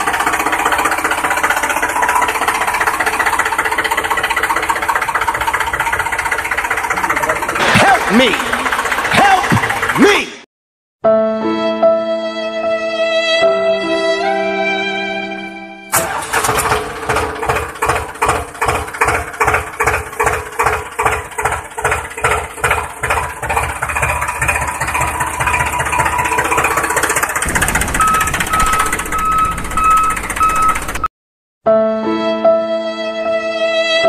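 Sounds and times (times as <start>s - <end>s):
diesel tractor engine chugging: 0.0s - 10.5s, 15.9s - 31.1s
repeating high beep: 28.0s - 30.8s.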